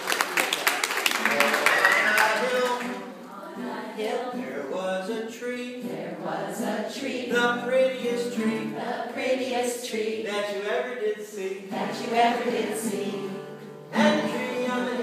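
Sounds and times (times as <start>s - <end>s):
acoustic guitar: 1.1s - 15.0s
man singing: 4.0s - 6.0s, 7.0s - 8.8s, 9.9s - 12.0s, 13.9s - 15.0s.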